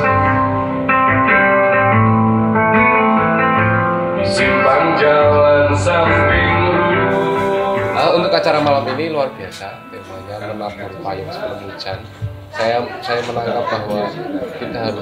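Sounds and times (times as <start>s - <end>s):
acoustic guitar strumming: 0.0s - 15.0s
man singing: 4.2s - 9.4s.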